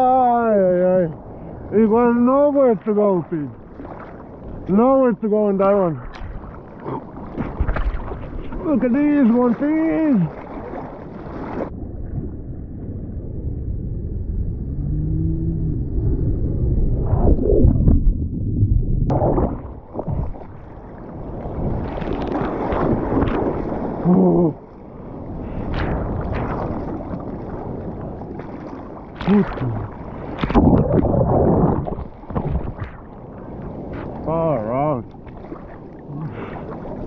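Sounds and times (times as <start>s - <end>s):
water splashing and sloshing: 0.0s - 14.0s, 16.9s - 37.0s
muffled underwater rumble: 0.0s - 37.0s
brief voice-like sounds: 29.2s - 29.9s.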